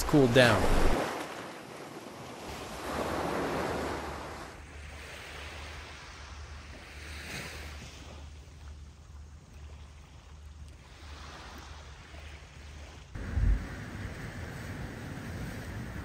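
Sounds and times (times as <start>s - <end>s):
sea waves washing on shore: 0.0s - 16.0s
wind rumble on microphone: 12.4s - 16.0s.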